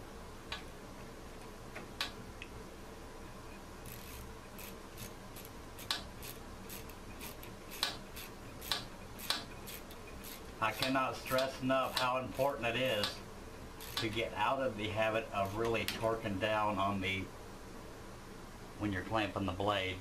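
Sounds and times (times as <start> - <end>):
socket ratchet clicking: 3.9 - 11.0, 13.8 - 14.1.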